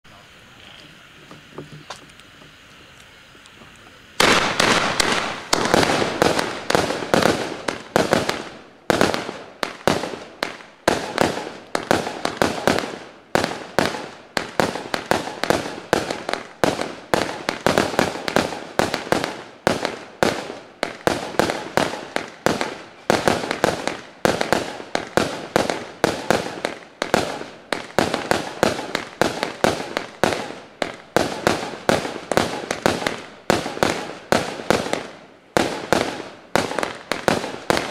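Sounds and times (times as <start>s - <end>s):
firework cake firing: 0.0s - 37.9s.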